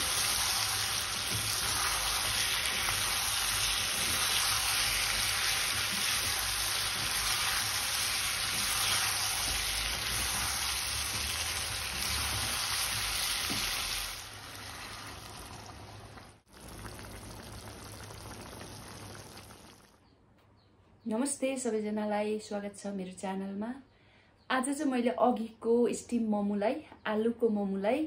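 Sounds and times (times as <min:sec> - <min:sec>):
wooden spatula stirring: 0:00.0 - 0:15.0
food sizzling in a wok: 0:00.0 - 0:19.8.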